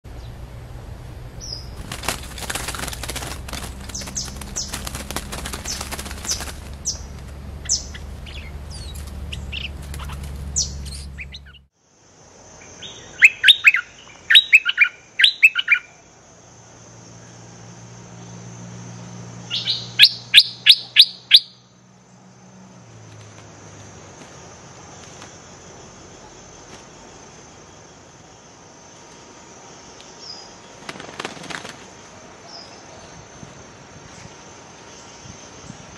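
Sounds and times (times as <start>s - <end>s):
wings fluttering and rustling: 1.4s - 11.6s, 23.0s - 27.8s, 30.6s - 33.8s
bird chirps: 1.4s - 11.7s, 12.6s - 16.0s, 19.4s - 21.8s.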